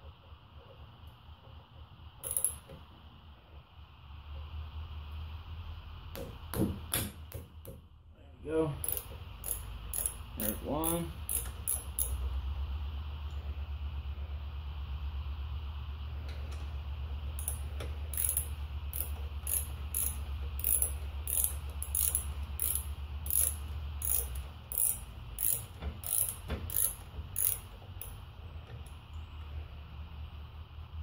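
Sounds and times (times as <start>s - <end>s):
socket ratchet clicking: 2.2s - 2.7s, 8.8s - 12.2s, 17.4s - 28.2s.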